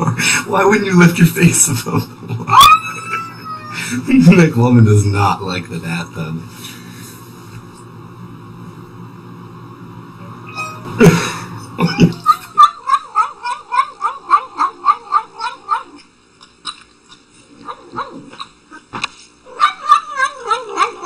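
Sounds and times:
cat yowling: 0:02.5 - 0:03.8, 0:10.4 - 0:11.0, 0:11.8 - 0:16.0, 0:17.6 - 0:18.4, 0:19.5 - 0:21.0.

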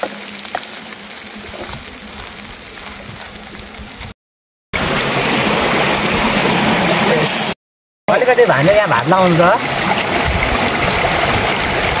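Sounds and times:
crabs sizzling in a wok: 0:00.0 - 0:04.1
stream rushing: 0:04.8 - 0:12.0.

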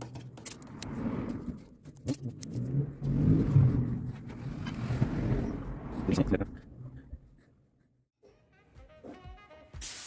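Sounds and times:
low rumbling: 0:00.6 - 0:07.8.

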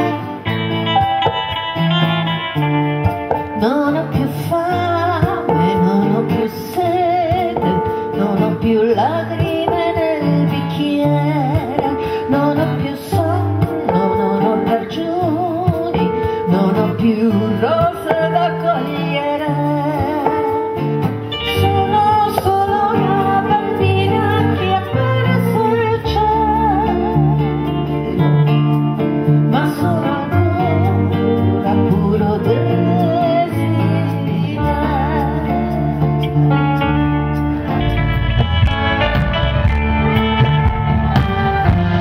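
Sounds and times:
acoustic guitar: 0:00.0 - 0:42.0
woman singing with vibrato: 0:03.4 - 0:28.6, 0:29.2 - 0:36.6.

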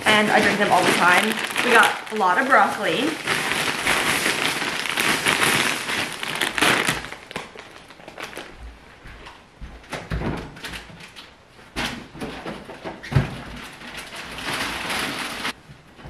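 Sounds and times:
plastic bags crinkling: 0:00.0 - 0:08.6, 0:13.6 - 0:15.6.

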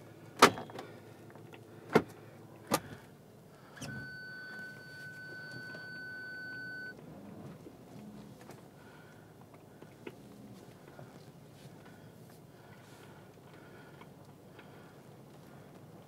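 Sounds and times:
high electronic beep: 0:03.8 - 0:07.0.

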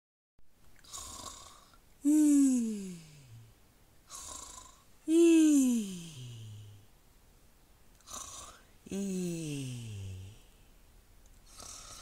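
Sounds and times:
person snoring loudly: 0:00.9 - 0:03.5, 0:04.1 - 0:06.8, 0:08.0 - 0:10.5, 0:11.5 - 0:12.0.

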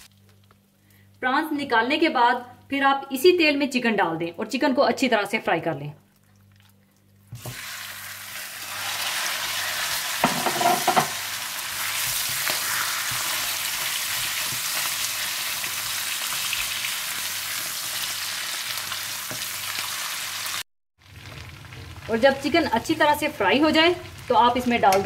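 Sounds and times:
chicken sizzling in hot oil: 0:07.3 - 0:24.9
clatter in a pan: 0:10.2 - 0:11.2.

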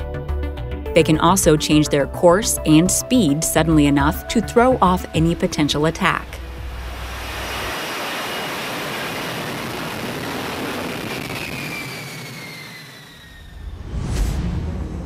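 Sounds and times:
jet engine rushing: 0:05.1 - 0:15.0
jet engine whine: 0:05.1 - 0:15.0.

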